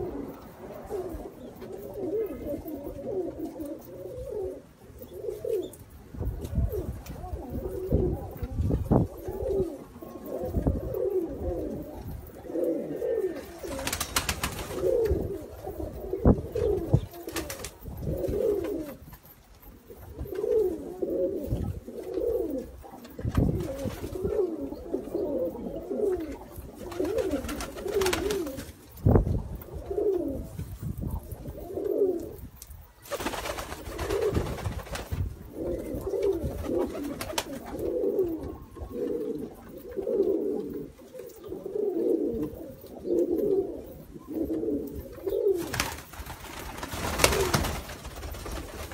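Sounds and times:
pigeons cooing: 0.0s - 48.9s
rustling noise: 26.1s - 41.4s.

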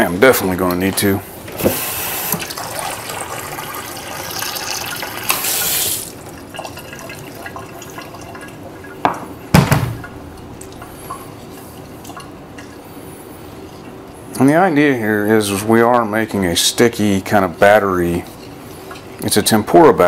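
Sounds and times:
faucet filling glass: 2.3s - 9.0s
sharp knocks: 9.0s - 10.1s.

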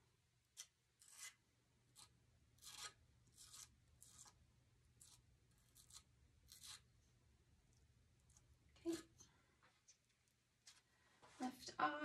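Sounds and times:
palette knife scraping: 0.6s - 4.4s, 5.0s - 6.9s.

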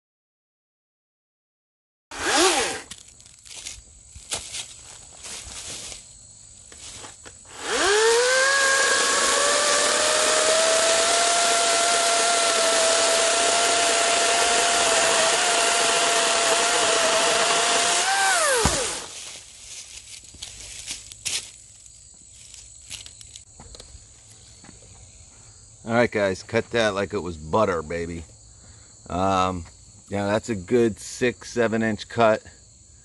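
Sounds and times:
battery chainsaw cutting wood: 2.1s - 3.1s, 7.5s - 19.3s.

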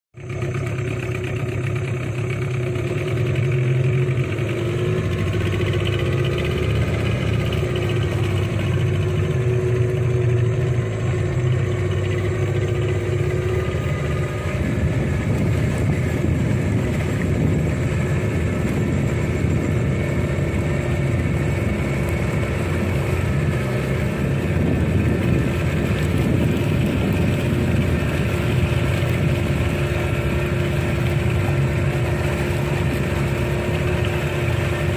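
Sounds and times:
boat motor running: 0.2s - 34.9s.

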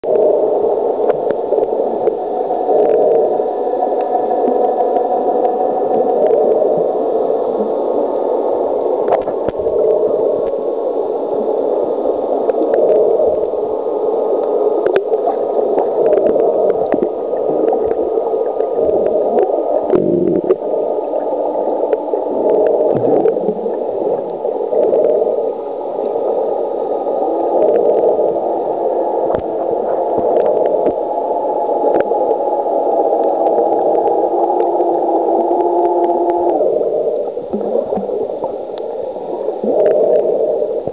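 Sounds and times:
muffled underwater rushing: 0.0s - 40.9s
faint clicks and ticks: 1.0s - 6.8s, 8.8s - 10.7s, 12.4s - 13.6s, 14.3s - 26.2s, 29.2s - 40.9s.

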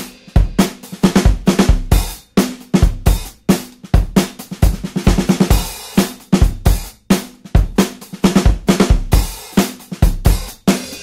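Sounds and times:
music with drum kit beat: 0.0s - 11.0s.

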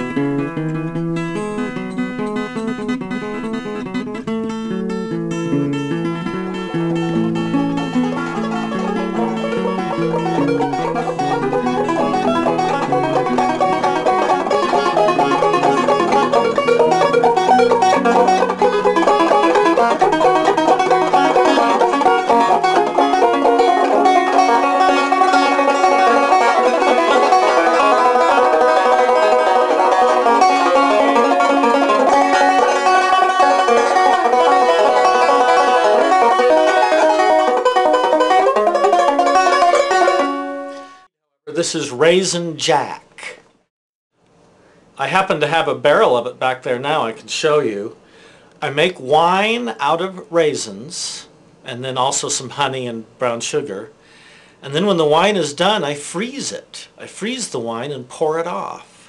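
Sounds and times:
banjo picking: 0.0s - 41.0s.

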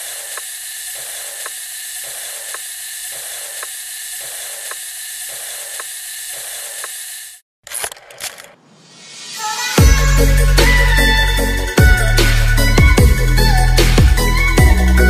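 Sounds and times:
regular mechanical tick: 0.0s - 7.1s.

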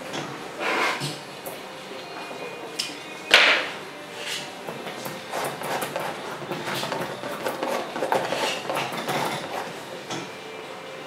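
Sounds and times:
paint tools scraping and tapping: 0.1s - 1.2s, 4.2s - 10.3s.

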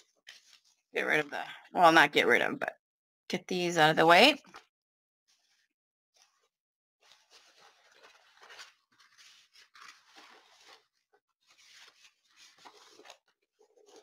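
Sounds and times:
plastic and paper crinkling: 0.0s - 0.9s, 5.3s - 14.0s.

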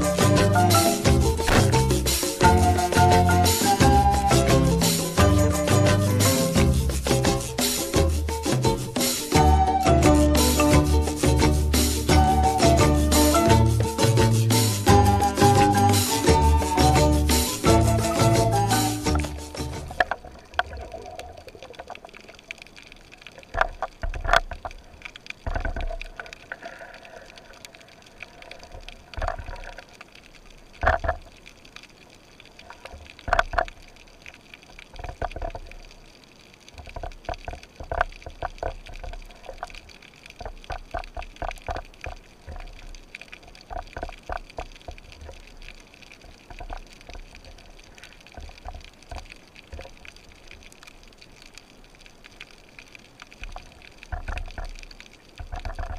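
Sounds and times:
water gurgling underwater: 19.1s - 52.4s, 53.0s - 55.9s.

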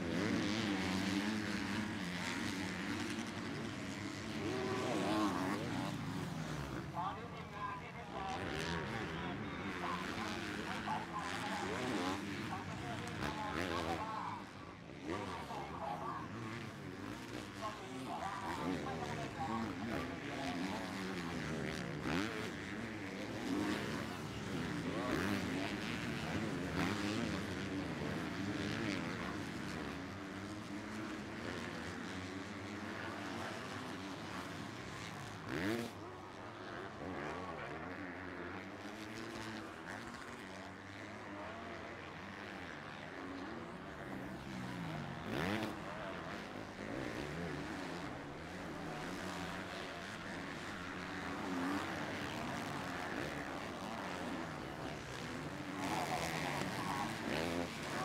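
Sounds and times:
motocross bikes revving: 0.0s - 58.0s.

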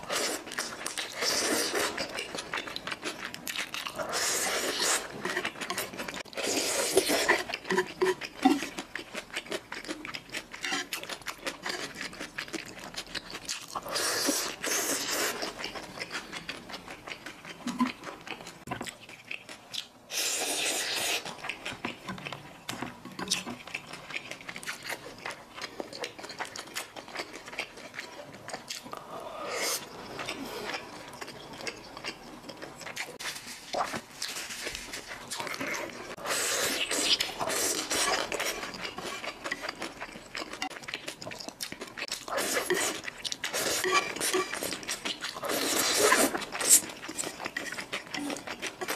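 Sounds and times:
wet chewing: 0.0s - 29.1s.

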